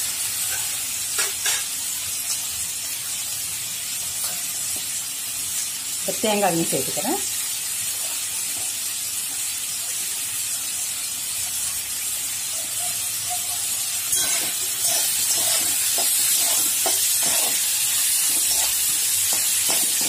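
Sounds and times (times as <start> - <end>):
food sizzling in hot oil: 0.0 - 20.0
spatula scraping pan: 14.1 - 20.0.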